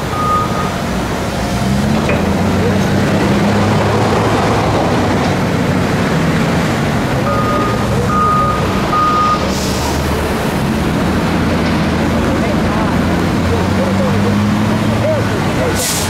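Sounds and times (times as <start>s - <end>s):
heavy diesel engines running: 0.0s - 16.0s
backup alarm beeping: 0.1s - 0.8s, 7.2s - 9.5s.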